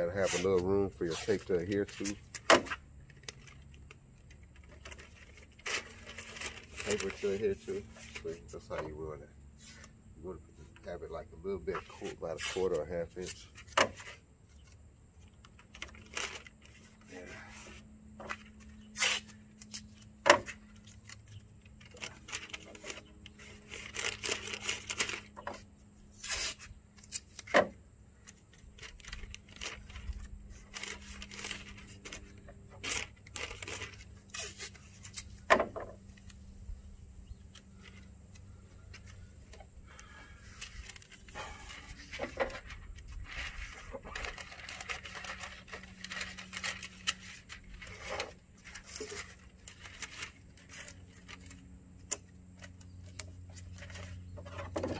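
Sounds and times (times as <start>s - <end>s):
paper crinkling and rustling: 0.0s - 9.0s, 11.6s - 36.5s, 37.5s - 54.9s
tape pulled and torn: 0.2s - 3.9s, 4.6s - 8.4s, 15.5s - 35.5s.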